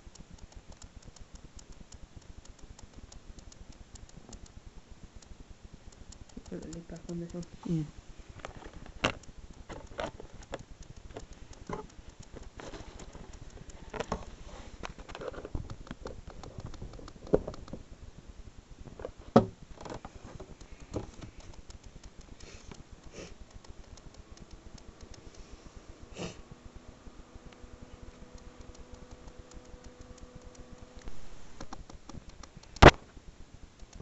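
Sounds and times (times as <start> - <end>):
faint steady hiss: 0.0 - 34.0
handling clicks and taps: 8.3 - 17.8, 18.9 - 25.4, 27.5 - 33.0.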